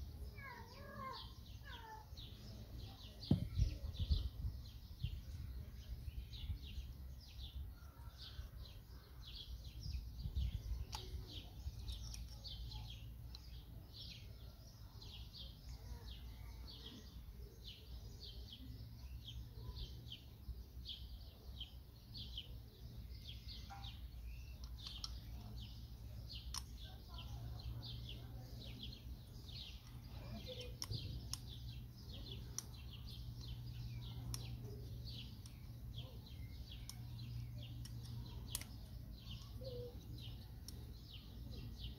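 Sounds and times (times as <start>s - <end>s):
small birds chirping: 0.0s - 41.9s
faint clicks: 24.5s - 27.4s, 28.6s - 41.2s.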